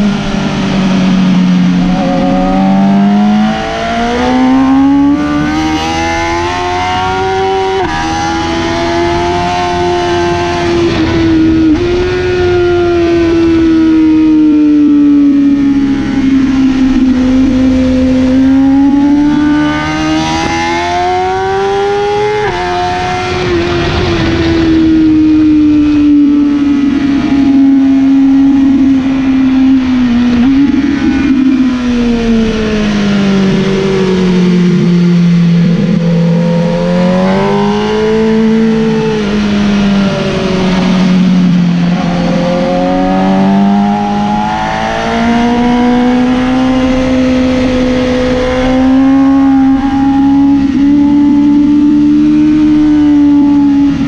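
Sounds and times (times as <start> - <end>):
motorcycle engine revving: 0.0 - 54.0
wind rushing past microphone: 0.0 - 54.0.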